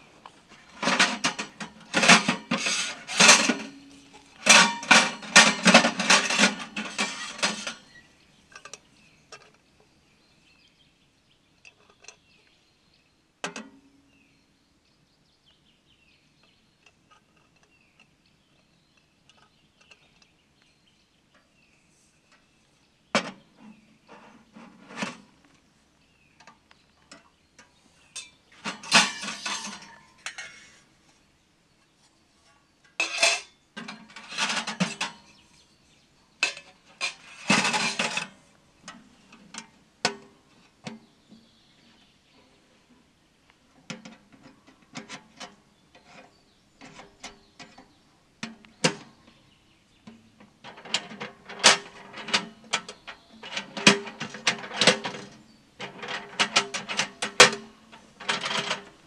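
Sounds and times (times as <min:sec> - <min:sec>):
metal stovepipes clinking and scraping: 0:00.6 - 0:09.5, 0:28.1 - 0:30.8, 0:32.9 - 0:35.4, 0:36.4 - 0:40.2, 0:50.6 - 0:59.0.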